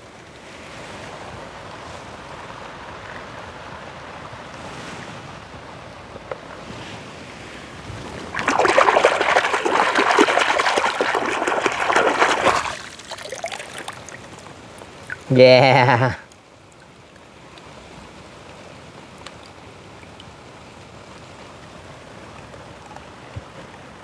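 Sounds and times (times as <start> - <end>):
shallow water lapping: 7.7 - 15.3
toy car splashing in water: 8.2 - 15.4.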